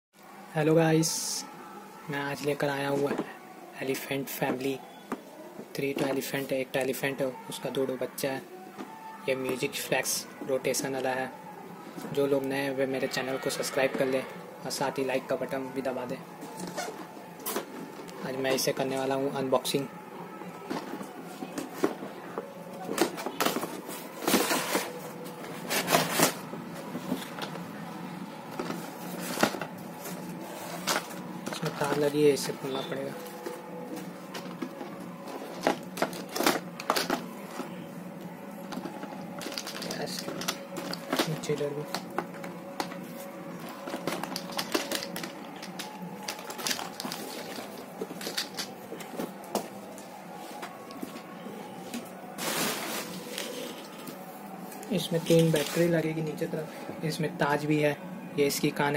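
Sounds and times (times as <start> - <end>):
cardboard rustling and scraping: 20.6 - 27.5, 28.5 - 37.8, 52.3 - 54.2
plastic toys clicking and knocking: 34.3 - 37.7, 38.6 - 43.0, 43.8 - 48.8.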